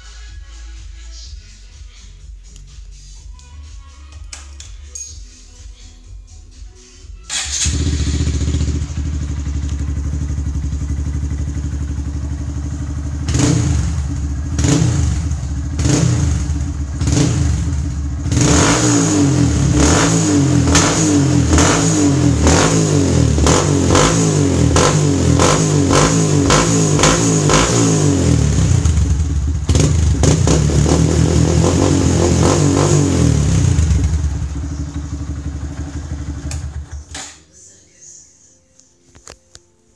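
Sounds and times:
motorcycle engine revving: 0:07.3 - 0:37.2.

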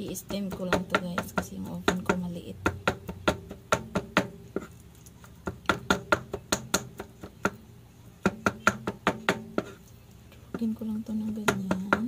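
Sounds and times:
knife chopping on board: 0:05.4 - 0:07.6, 0:08.3 - 0:09.8.

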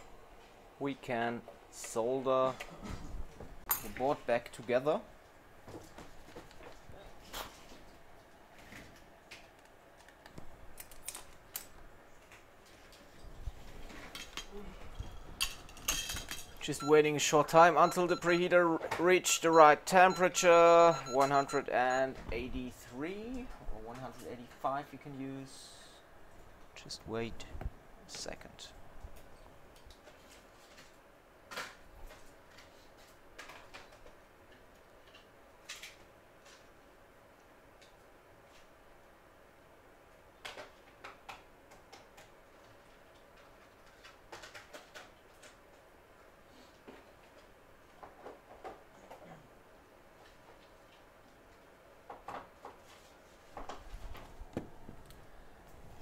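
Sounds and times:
faint steady hum: 0:00.0 - 0:56.0.

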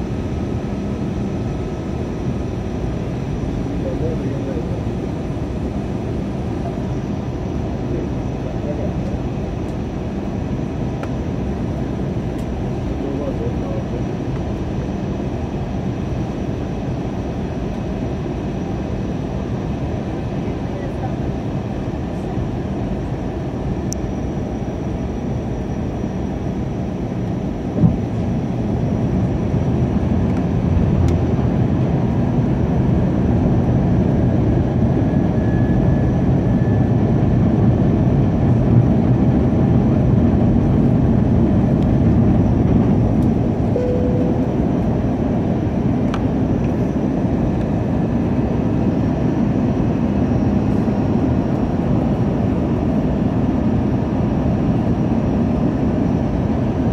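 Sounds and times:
airplane cabin engine rumble: 0:00.0 - 0:56.9.

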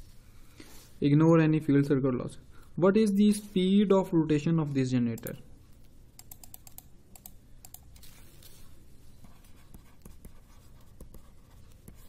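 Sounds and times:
faint computer clicks: 0:06.2 - 0:08.1
stylus scratching on tablet: 0:09.2 - 0:12.0.

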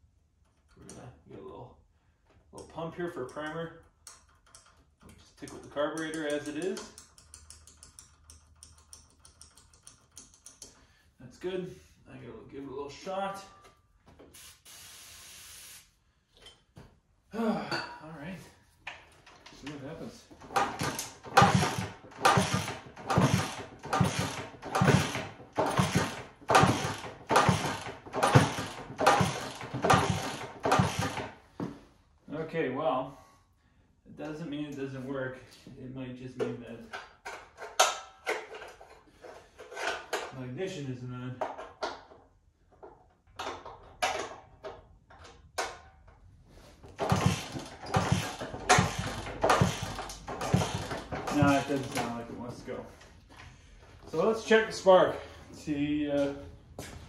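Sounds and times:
clicks and clanks: 0:02.6 - 0:10.8, 0:18.8 - 0:31.7, 0:36.4 - 0:40.4, 0:41.4 - 0:52.3
motorcycle engine kick-started: 0:20.5 - 0:31.4, 0:46.9 - 0:52.2.

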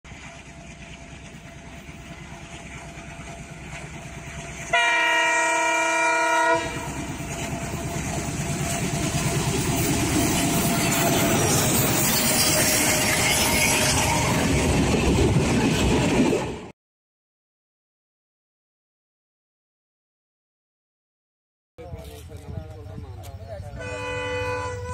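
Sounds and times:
wheels on rails: 0:00.1 - 0:04.8, 0:06.7 - 0:16.7
diesel locomotive engine: 0:00.1 - 0:16.7, 0:21.8 - 0:24.9
train horn: 0:04.6 - 0:07.1, 0:12.2 - 0:14.6, 0:23.8 - 0:24.9.

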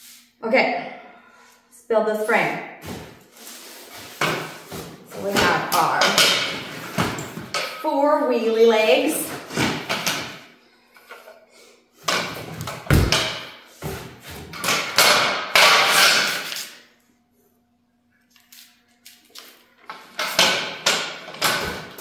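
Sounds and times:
metal frame parts clattering: 0:03.4 - 0:07.8, 0:14.5 - 0:16.7, 0:19.9 - 0:22.0.

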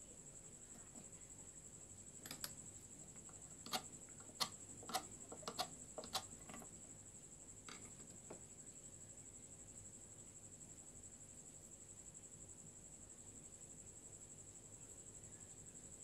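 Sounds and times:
metallic ticks and taps: 0:03.2 - 0:06.7.

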